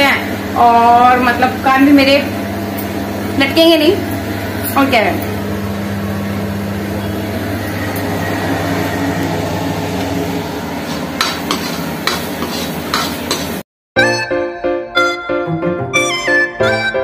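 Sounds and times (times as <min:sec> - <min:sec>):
paste sizzling in a pan: 0:10.7 - 0:13.6
spoon scraping and knocking pan: 0:10.7 - 0:13.6.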